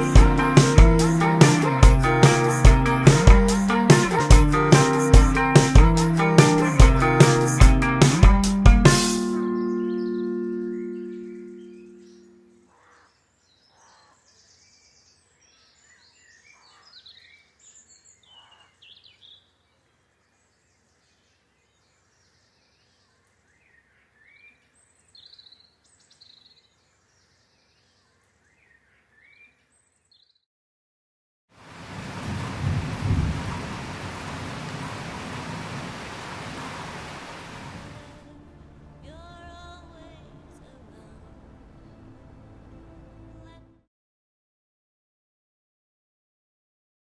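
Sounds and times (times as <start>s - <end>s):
birds chirping: 9.3s - 30.4s
heavy rain: 31.6s - 38.3s
low rumble of thunder: 31.9s - 36.3s.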